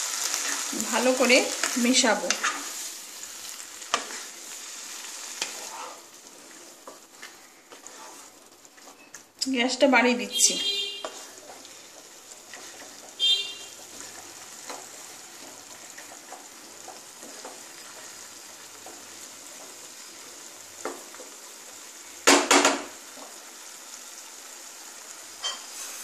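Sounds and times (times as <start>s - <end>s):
lentils sizzling in a pan: 0.0s - 26.0s
wooden spatula scraping a pan: 0.2s - 9.2s, 10.0s - 20.2s.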